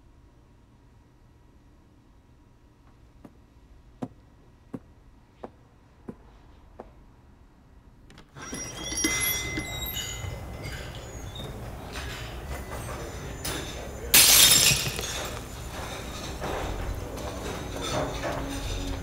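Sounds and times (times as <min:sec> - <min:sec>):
busy room hum: 0:00.0 - 0:19.0
dishes and glassware clattering: 0:08.5 - 0:19.0.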